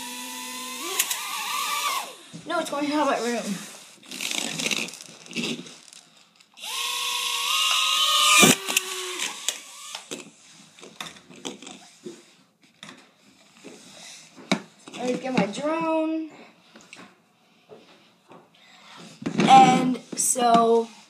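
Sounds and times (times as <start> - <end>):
toy drone motors whining: 0.0 - 2.2, 6.6 - 10.2.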